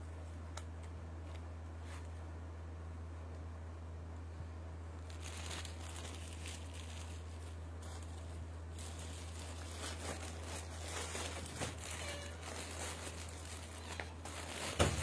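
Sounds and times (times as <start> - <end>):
steady low hum: 0.0 - 15.0
plastic packaging crinkling: 5.0 - 15.0.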